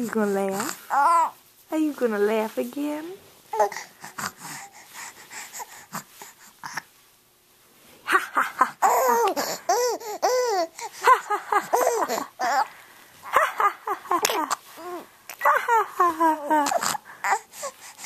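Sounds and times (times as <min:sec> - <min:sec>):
baby laughing and squealing: 0:08.1 - 0:17.8.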